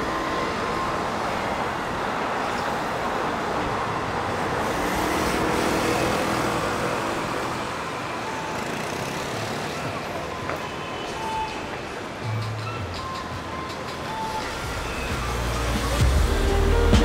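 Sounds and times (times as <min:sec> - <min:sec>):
cars passing: 0:00.0 - 0:17.0.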